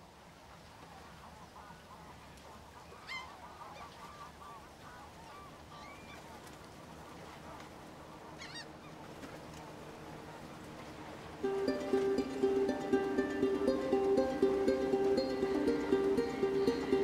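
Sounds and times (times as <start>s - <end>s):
waterfowl calling: 1.4s - 6.2s, 7.2s - 9.0s, 11.5s - 17.0s.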